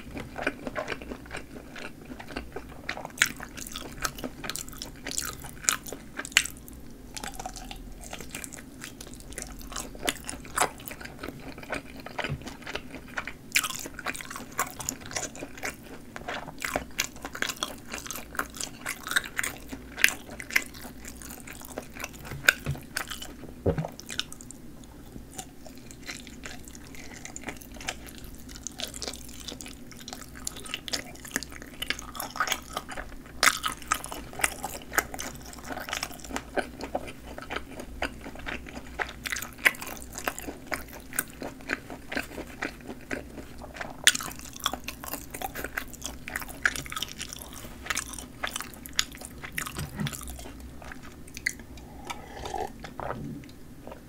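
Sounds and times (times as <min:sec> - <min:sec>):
chewing sausage: 0:00.0 - 0:54.0.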